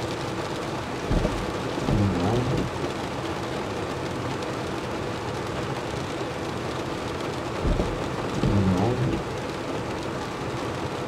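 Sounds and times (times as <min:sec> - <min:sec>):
rain on car windshield: 0:00.0 - 0:11.0
thump: 0:01.1 - 0:02.7, 0:07.6 - 0:09.2
windshield wiper rubbing: 0:01.1 - 0:02.8, 0:07.6 - 0:09.4.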